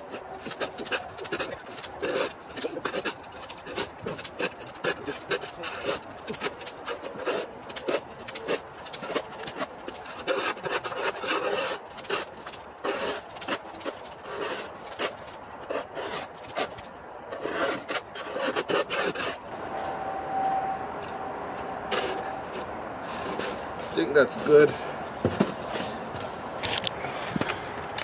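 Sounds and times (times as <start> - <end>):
plastic shovel scraping paving stones: 0.0 - 19.5, 21.9 - 26.9.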